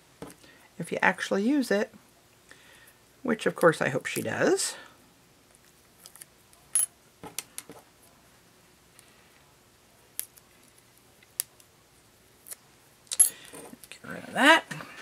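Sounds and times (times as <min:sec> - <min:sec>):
small metal pieces clicking: 0:12.4 - 0:14.0.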